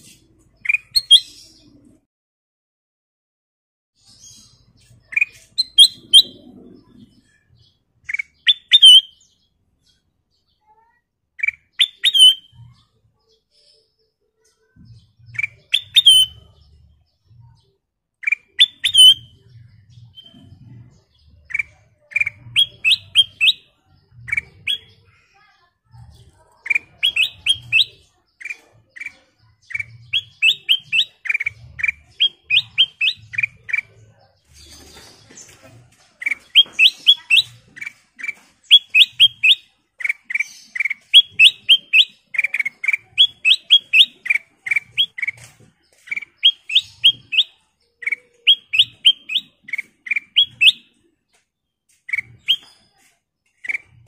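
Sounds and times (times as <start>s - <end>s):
bird singing whistled notes: 0.6s - 1.4s, 4.8s - 6.4s, 8.1s - 9.4s, 11.4s - 12.6s, 15.3s - 16.8s, 18.2s - 20.5s, 21.4s - 25.0s, 26.7s - 34.0s, 36.2s - 51.0s, 52.1s - 53.0s.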